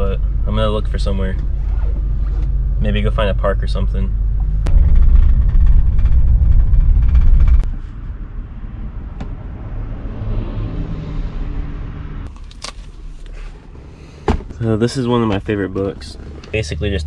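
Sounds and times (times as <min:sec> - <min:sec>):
steady low hum: 0:00.0 - 0:09.6
van engine rumbling: 0:00.0 - 0:10.0, 0:11.4 - 0:17.0.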